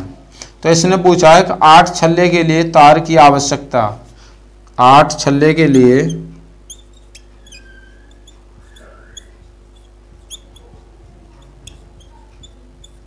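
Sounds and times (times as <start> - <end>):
faint steady hum: 0.0 - 13.0
whiteboard marker squeaking: 5.6 - 13.0.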